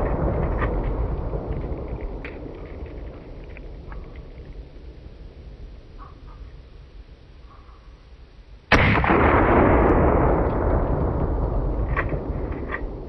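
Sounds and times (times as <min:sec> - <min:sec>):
rumble after shot: 0:00.0 - 0:06.8, 0:08.7 - 0:13.0
shotgun blast: 0:08.7 - 0:13.0.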